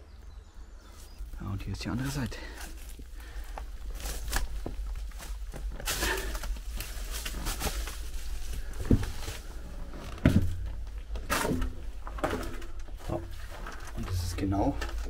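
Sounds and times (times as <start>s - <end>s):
steady low rumble: 0.0s - 13.5s
clothes and backpack rustling: 0.8s - 15.0s
footsteps and scuffing: 0.9s - 14.3s
dull thumps: 3.2s - 14.2s.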